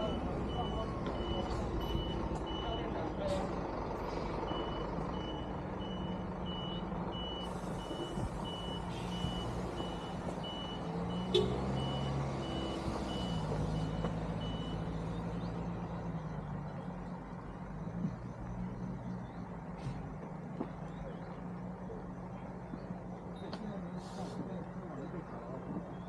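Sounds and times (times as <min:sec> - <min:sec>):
reversing alarm beeping: 0:00.0 - 0:03.2, 0:04.5 - 0:15.4
vehicle engine running: 0:00.0 - 0:26.0.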